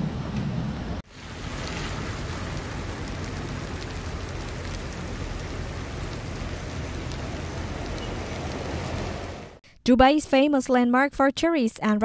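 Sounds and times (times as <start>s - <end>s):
heavy rain on water and pavement: 1.0s - 9.6s.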